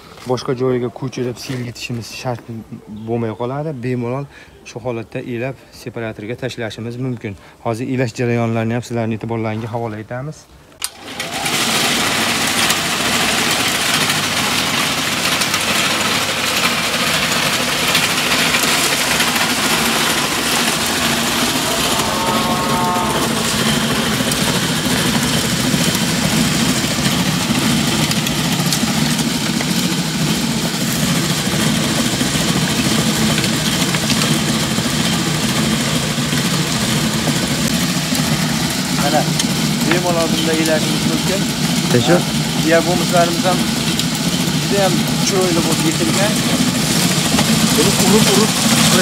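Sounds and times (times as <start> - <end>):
compost tumbling in drum: 10.8 - 49.0
rotary drum sieve hum: 10.8 - 49.0.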